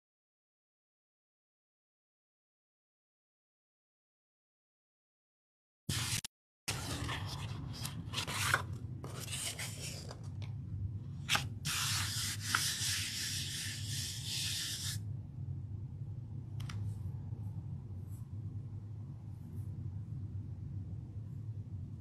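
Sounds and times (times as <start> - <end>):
hand rubbing over paper: 5.9 - 10.3, 11.3 - 15.0.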